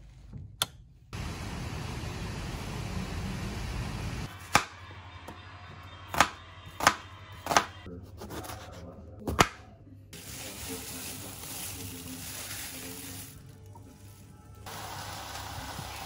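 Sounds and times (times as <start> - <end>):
knife chopping onion on cutting board: 6.1 - 8.6
fountain splashing: 14.7 - 16.0.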